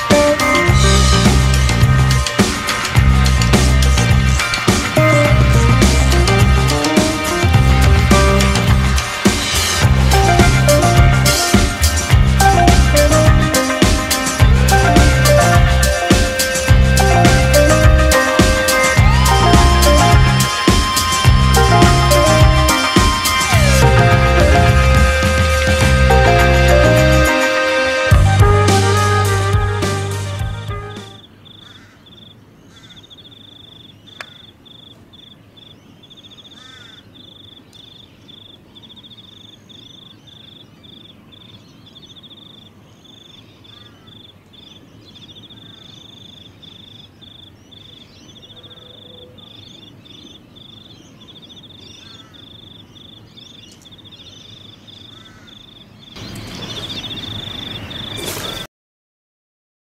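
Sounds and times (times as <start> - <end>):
insects trilling: 15.8 - 23.6, 31.1 - 58.7
faint bird chirps: 31.1 - 58.7.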